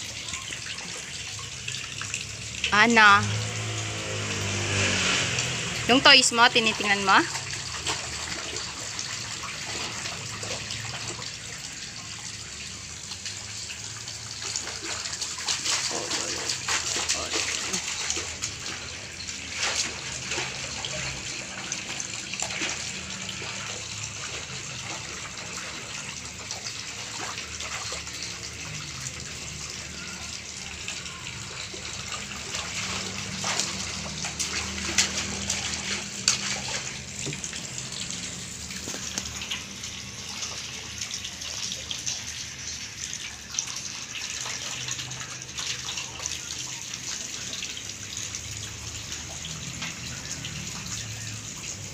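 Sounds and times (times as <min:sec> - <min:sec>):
water sloshing in a metal basin: 0:00.0 - 0:51.9.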